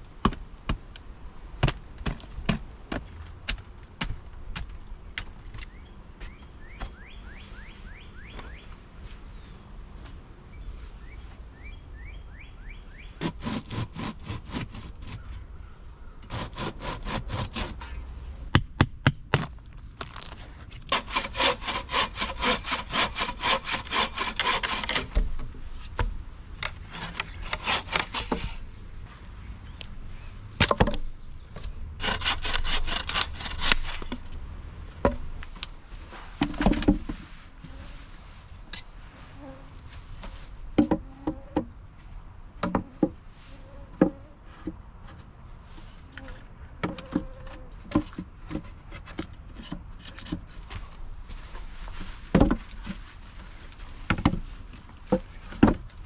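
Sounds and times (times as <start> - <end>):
saw cutting a log: 13.2 - 15.4, 16.2 - 18.0, 20.9 - 25.3, 26.7 - 28.6, 32.0 - 34.1
wooden knocks: 40.8 - 41.7.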